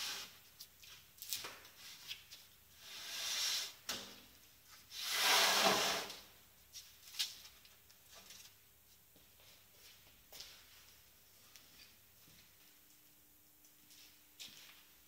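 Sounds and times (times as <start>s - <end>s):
panel scraping across board: 5.0s - 6.2s.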